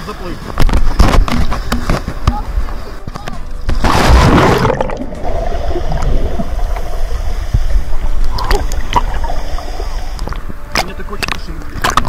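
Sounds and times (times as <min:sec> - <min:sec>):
water splashing: 0:00.1 - 0:12.0
muffled underwater rumble: 0:00.6 - 0:12.0
water bubbling: 0:03.5 - 0:12.0.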